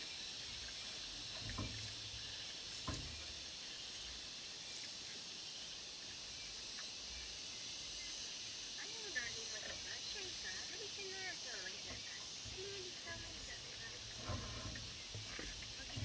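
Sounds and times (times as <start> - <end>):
insects hissing: 0.0 - 16.0.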